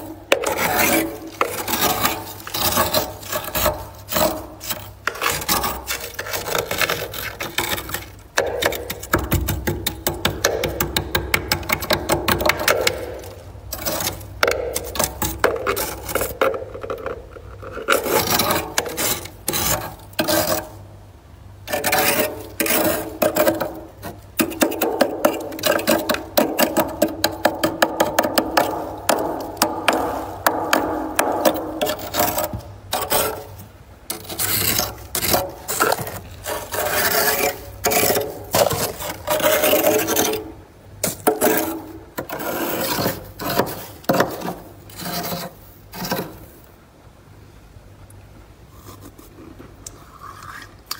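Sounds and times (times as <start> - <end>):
frost scraping: 0.0 - 9.8, 11.7 - 20.8, 21.7 - 46.6.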